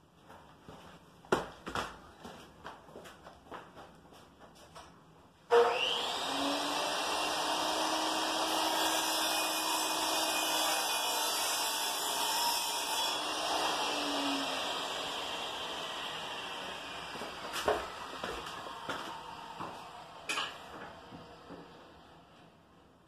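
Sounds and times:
power tool motor running: 5.6s - 9.0s.

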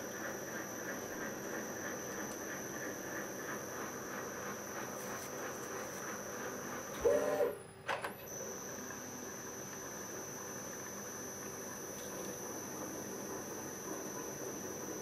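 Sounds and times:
milling machine spindle running: 0.0s - 15.0s
brief loud tone: 7.0s - 7.6s.

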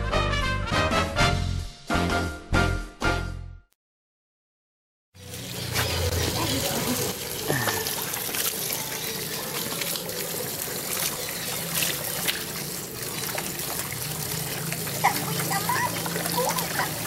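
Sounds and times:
puppy drinking and splashing: 5.2s - 17.0s
water trickling into basin: 5.2s - 17.0s.

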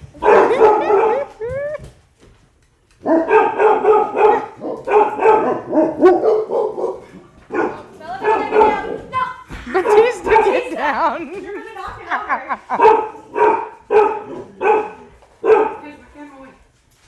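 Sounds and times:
dogs barking and yipping: 0.0s - 1.8s, 3.0s - 11.1s, 12.7s - 15.8s
dogs whining and whimpering: 0.4s - 1.8s.

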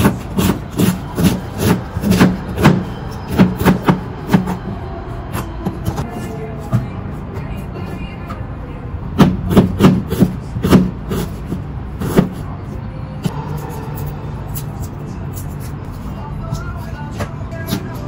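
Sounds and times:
knife chopping on plastic board: 0.0s - 4.6s.

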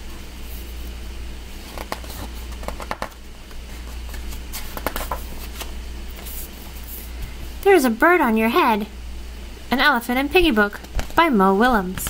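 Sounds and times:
steady low hum: 0.0s - 12.0s
book pages turning: 1.6s - 6.7s.

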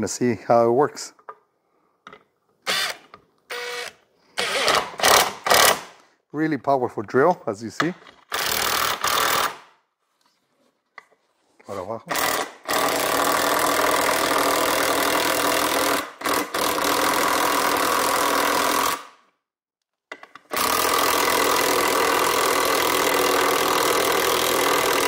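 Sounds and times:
impact wrench driving screw into wood: 2.6s - 6.1s, 8.0s - 9.7s, 12.1s - 19.3s, 20.1s - 25.0s.

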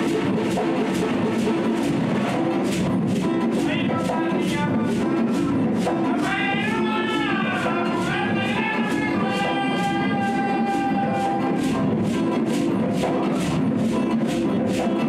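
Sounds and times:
hand drums playing groove: 0.0s - 15.0s
men singing: 6.0s - 11.8s.

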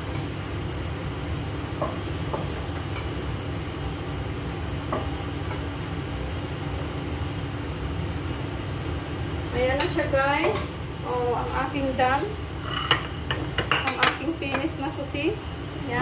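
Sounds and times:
range hood fan rumbling: 0.0s - 16.0s
utensil clinking on pan and plates: 12.6s - 14.8s.

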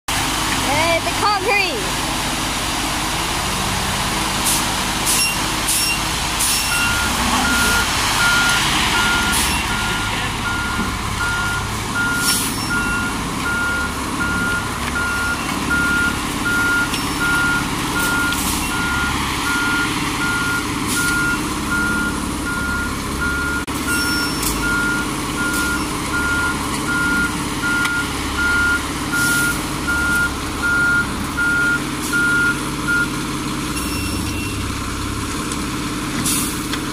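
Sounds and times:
truck engine drone: 0.1s - 36.9s
backup alarm beeping: 6.6s - 33.2s, 33.8s - 34.7s.

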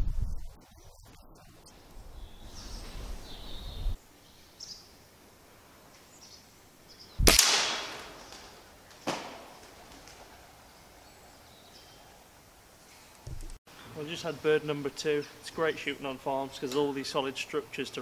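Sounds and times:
air rifle shot: 7.2s - 10.2s.

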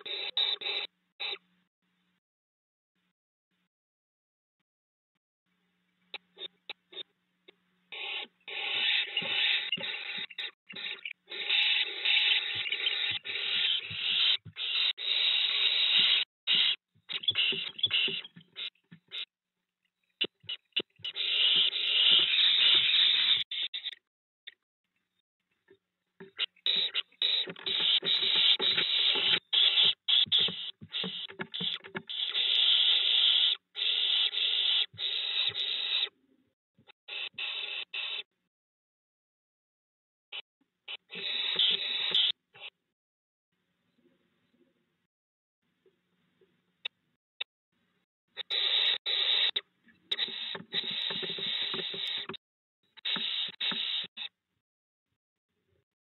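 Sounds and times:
owlets screeching: 0.0s - 1.4s, 7.9s - 19.3s, 20.2s - 24.0s, 26.2s - 36.1s, 37.1s - 38.3s, 40.9s - 42.7s, 48.4s - 52.3s, 53.0s - 54.3s.

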